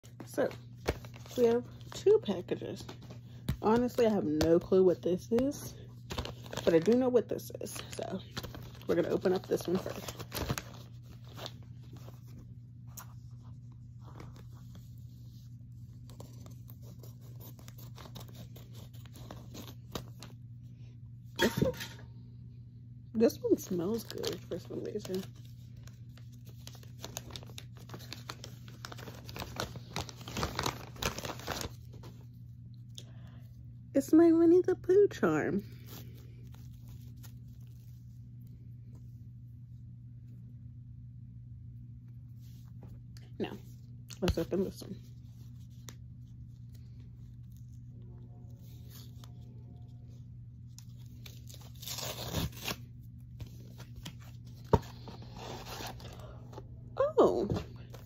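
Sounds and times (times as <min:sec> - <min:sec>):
paper rustling: 0:06.0 - 0:20.4, 0:23.8 - 0:32.4
plastic bag crinkling: 0:23.6 - 0:32.0
paper envelope tearing: 0:23.9 - 0:32.0, 0:50.9 - 0:56.1.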